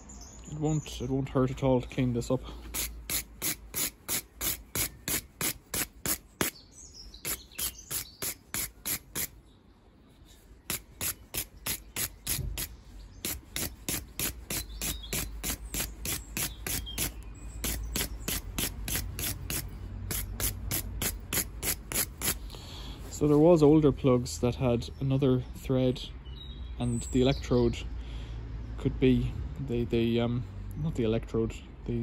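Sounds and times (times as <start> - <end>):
wire brush scrubbing spark plug: 2.7 - 6.6, 7.3 - 9.3, 10.7 - 22.4.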